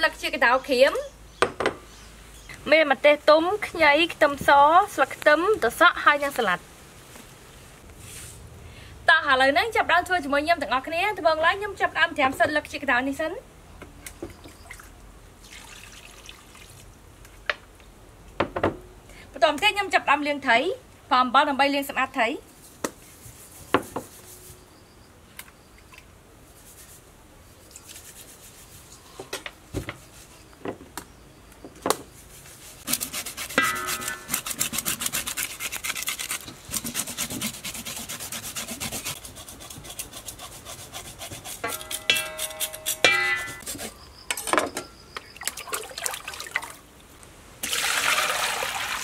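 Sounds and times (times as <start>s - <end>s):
knife scraping fish scales: 32.8s - 44.0s.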